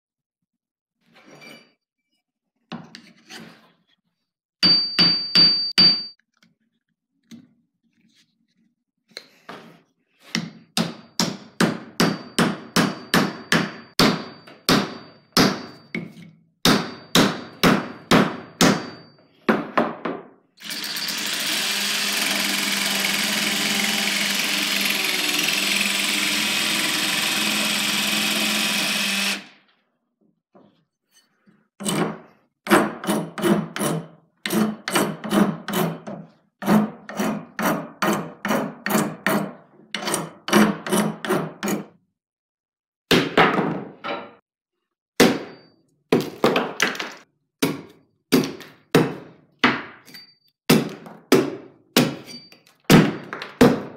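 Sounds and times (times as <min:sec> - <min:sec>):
jigsaw cutting wood: 0:20.6 - 0:29.6
hand file rasping: 0:33.0 - 0:41.4.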